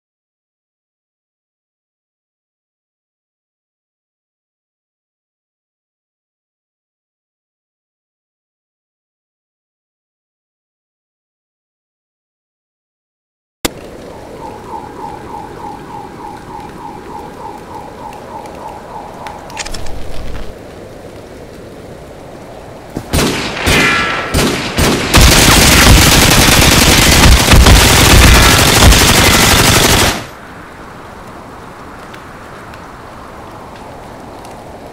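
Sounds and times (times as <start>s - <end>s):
rain hiss: 13.7s - 24.4s, 25.1s - 34.9s
single gunshots: 23.1s - 29.3s
machine-gun fire: 23.1s - 30.3s.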